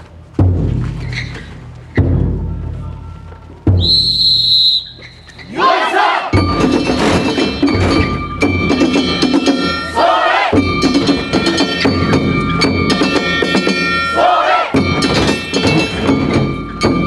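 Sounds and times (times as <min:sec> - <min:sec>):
drum beats: 0:00.1 - 0:17.0
people shouting together: 0:05.5 - 0:06.4, 0:09.8 - 0:10.6, 0:14.1 - 0:14.8
clanging metal bells: 0:06.2 - 0:17.0.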